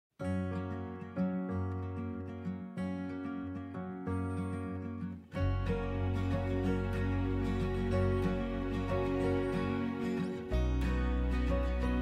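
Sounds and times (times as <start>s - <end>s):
music with sustained chords: 4.3s - 12.0s.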